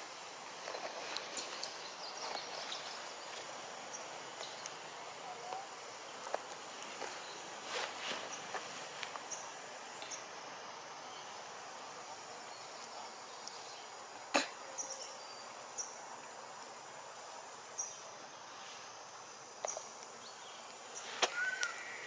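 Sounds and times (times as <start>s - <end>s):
steady forest hiss: 0.0s - 22.0s.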